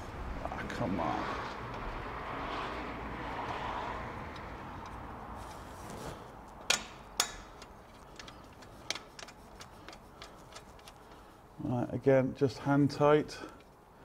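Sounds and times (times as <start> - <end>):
faint background rush: 0.0 - 14.0
sharp metallic clicks: 6.6 - 11.2.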